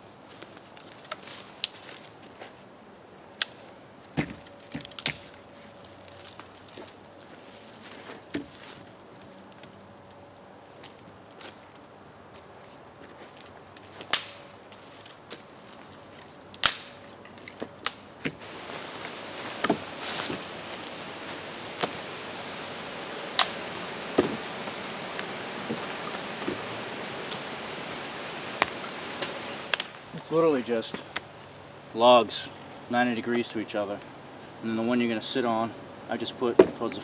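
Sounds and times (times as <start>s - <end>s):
logs knocking together: 18.3s - 22.0s, 23.3s - 27.5s
steady hiss: 18.4s - 37.0s.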